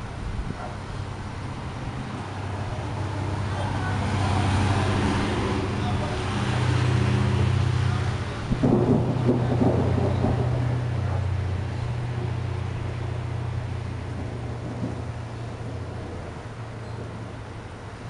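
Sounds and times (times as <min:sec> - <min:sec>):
rolling thunder: 0:04.9 - 0:17.9.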